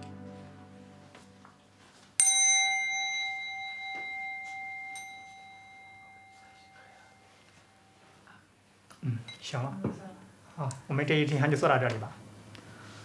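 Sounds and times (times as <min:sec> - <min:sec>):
handheld bell ringing: 0:02.2 - 0:08.0.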